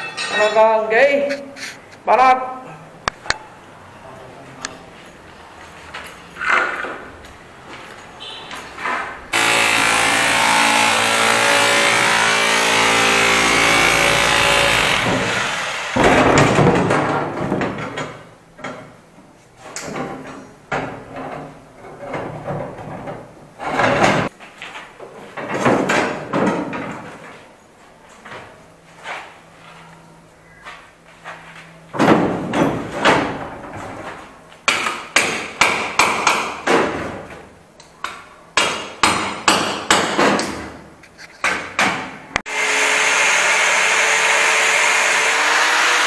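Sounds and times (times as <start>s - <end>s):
tools and metal clattering: 0.0s - 1.2s, 19.6s - 27.5s
angle grinder running: 9.3s - 16.0s, 42.5s - 46.0s.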